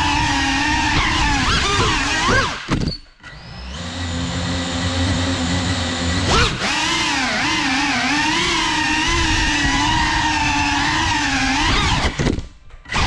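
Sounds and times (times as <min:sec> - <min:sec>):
drone motors and propellers whining: 0:00.0 - 0:13.0.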